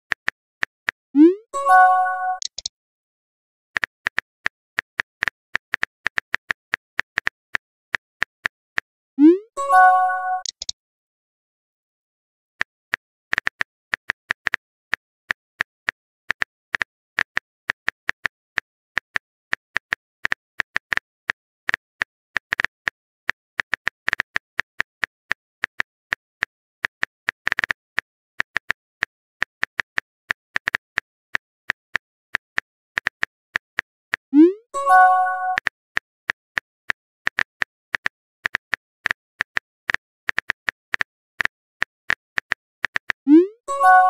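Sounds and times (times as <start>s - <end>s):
phone keyboard typing clicks: 1.2s - 2.7s, 9.8s - 10.7s.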